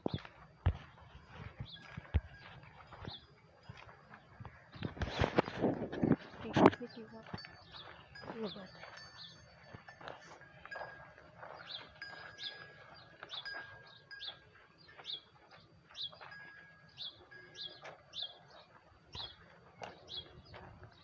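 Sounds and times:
birds chirping: 0:00.0 - 0:21.0
bell-like tone: 0:06.5 - 0:15.2, 0:16.1 - 0:18.6.

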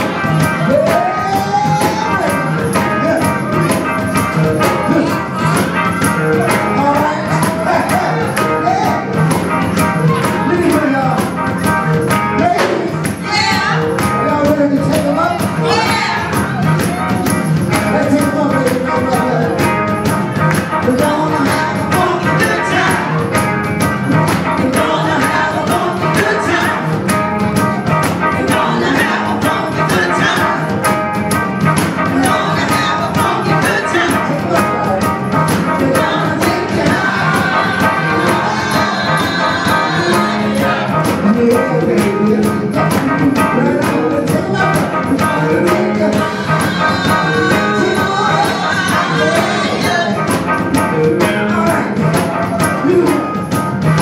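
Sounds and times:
live band playing dance music: 0:00.0 - 0:54.0
woman singing: 0:13.2 - 0:14.1, 0:15.1 - 0:16.7, 0:20.8 - 0:23.2, 0:24.6 - 0:27.1, 0:28.3 - 0:30.8, 0:32.0 - 0:34.5, 0:35.8 - 0:42.5, 0:43.3 - 0:50.5.

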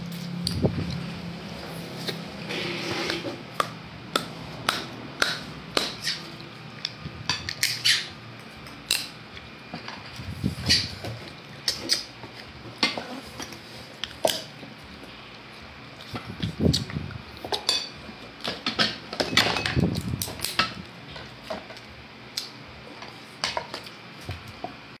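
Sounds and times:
chewing and mouth noises: 0:14.0 - 0:17.6.

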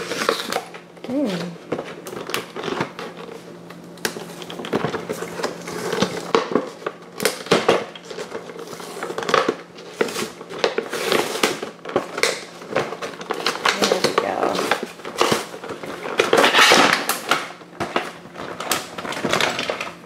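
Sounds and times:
plastic packaging crinkling: 0:00.0 - 0:20.0.

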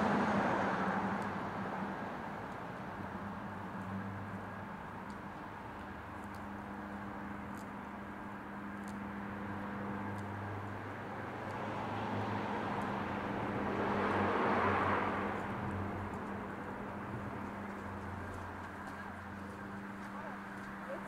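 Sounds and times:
car passing by: 0:00.0 - 0:04.3, 0:09.2 - 0:21.0.

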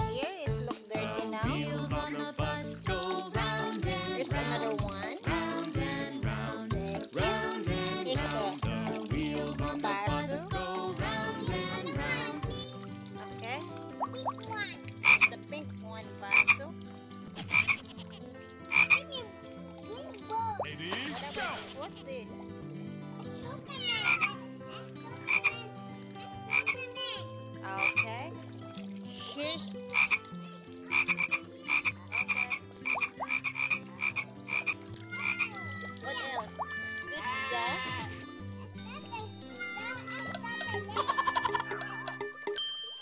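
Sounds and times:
rain dripping into water: 0:00.0 - 0:21.1, 0:22.2 - 0:43.0
frog croaking: 0:15.0 - 0:15.5, 0:16.2 - 0:16.8, 0:17.4 - 0:19.1, 0:24.0 - 0:24.5, 0:25.3 - 0:25.7, 0:26.5 - 0:27.0, 0:27.6 - 0:28.3, 0:29.8 - 0:36.6.

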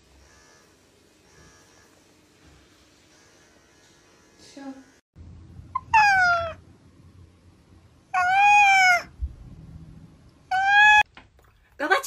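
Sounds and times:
cat meowing: 0:05.8 - 0:06.6, 0:08.1 - 0:09.2, 0:10.5 - 0:11.0.

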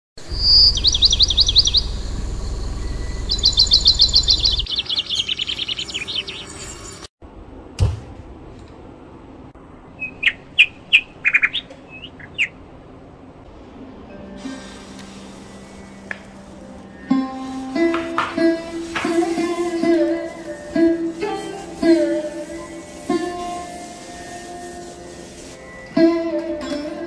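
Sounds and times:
low rumble: 0:00.2 - 0:04.7
small birds trilling and chirping: 0:00.3 - 0:07.1, 0:10.0 - 0:12.6, 0:14.6 - 0:26.2.

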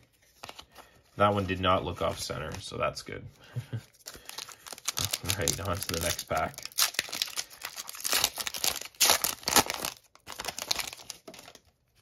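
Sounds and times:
foil wrapper tearing and crinkling: 0:04.0 - 0:12.0.

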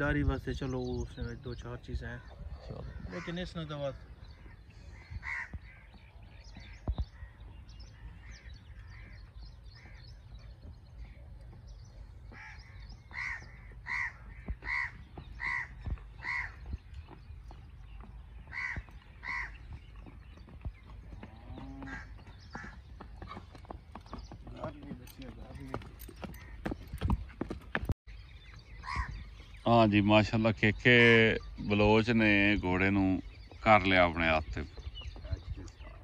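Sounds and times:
crow cawing: 0:04.3 - 0:06.0, 0:12.3 - 0:16.6, 0:18.5 - 0:19.6.

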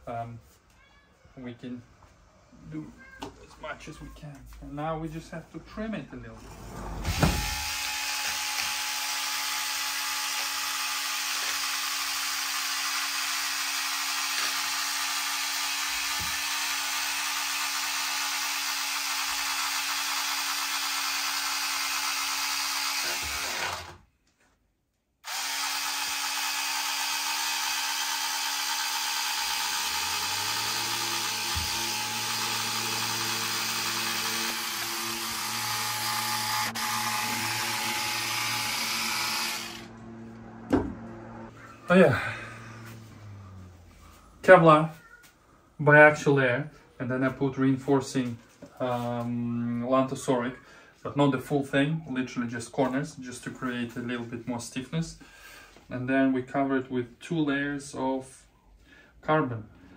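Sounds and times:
electric fabric cutter whining: 0:07.0 - 0:24.1, 0:25.2 - 0:44.0
low hum: 0:36.5 - 0:44.4.

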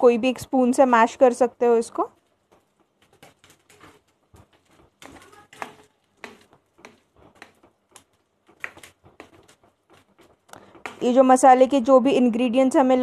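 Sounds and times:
masher squelching eggplant: 0:02.6 - 0:11.2.

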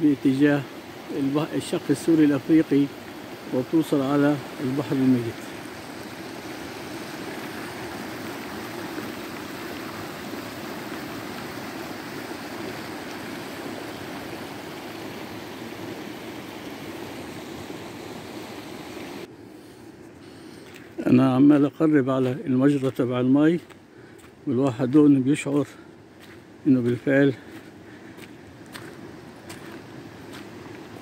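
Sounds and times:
water rushing down rocky gully: 0:00.0 - 0:19.3.

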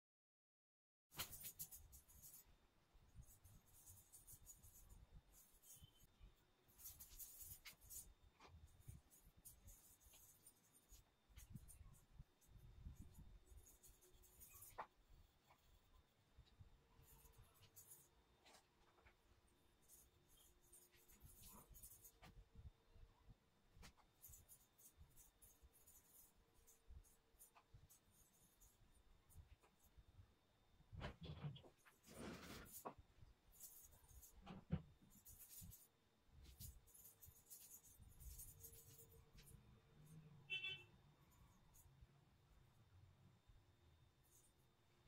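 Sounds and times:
hand scratching on rough floor: 0:31.3 - 0:33.0.

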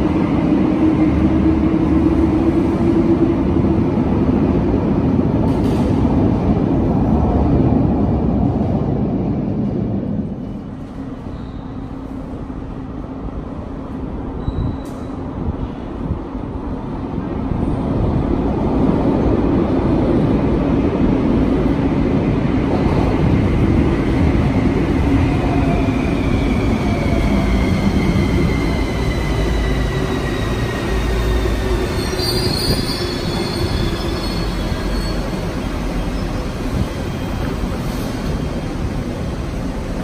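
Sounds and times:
train wheels rumbling on rails: 0:00.0 - 0:40.0
high brake squeal: 0:11.2 - 0:11.9, 0:14.4 - 0:15.3, 0:28.4 - 0:36.5.

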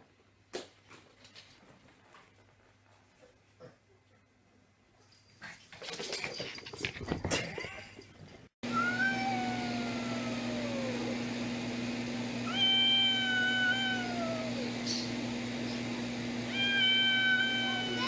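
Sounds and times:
cat yowling: 0:08.7 - 0:11.2, 0:12.4 - 0:14.7, 0:16.5 - 0:18.0.

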